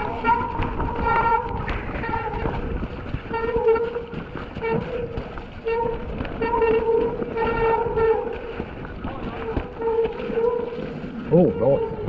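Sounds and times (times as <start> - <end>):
disc brakes honking: 0.0 - 2.5, 3.3 - 8.6
bike rattling on rough trail: 0.0 - 12.0.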